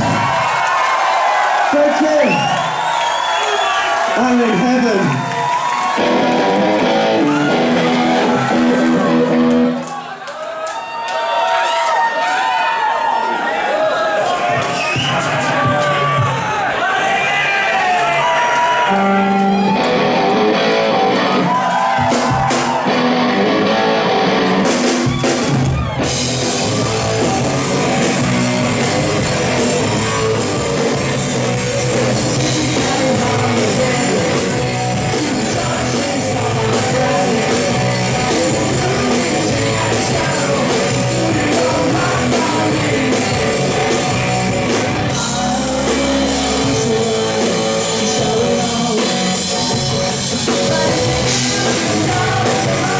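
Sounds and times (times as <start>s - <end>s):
live rock band playing: 5.7s - 9.8s, 18.9s - 52.9s
sung lead vocal: 31.9s - 52.9s.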